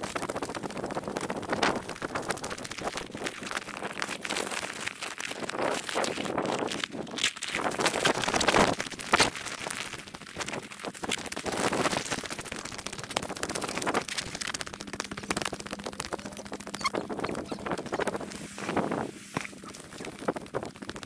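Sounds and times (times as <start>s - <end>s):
wind buffeting microphone: 10.4s - 21.0s.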